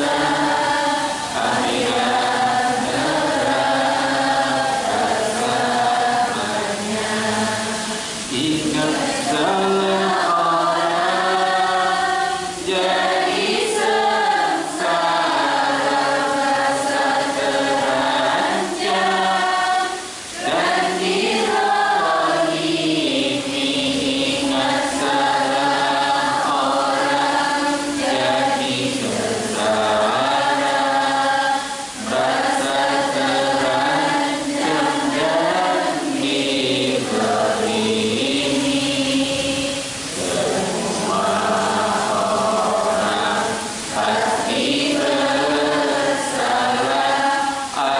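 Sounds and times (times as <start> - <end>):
man chanting into a microphone: 0.0 - 11.7, 22.0 - 47.9.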